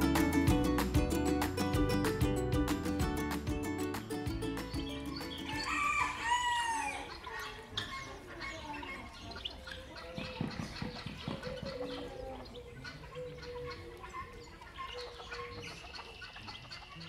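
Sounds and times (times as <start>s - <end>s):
chickens clucking: 3.0s - 17.0s
rooster crowing: 5.5s - 7.1s.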